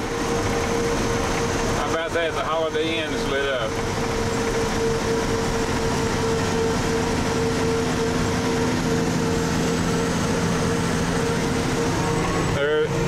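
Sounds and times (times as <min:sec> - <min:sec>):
diesel truck engine drone: 0:00.0 - 0:13.0
road noise: 0:00.0 - 0:13.0
humming tone: 0:04.0 - 0:13.0.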